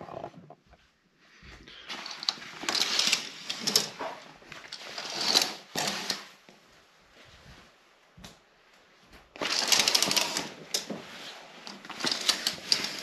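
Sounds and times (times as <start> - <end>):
curtain rail rattling clicks: 9.4 - 10.9, 11.7 - 13.0
curtain fabric swishing: 9.4 - 13.0.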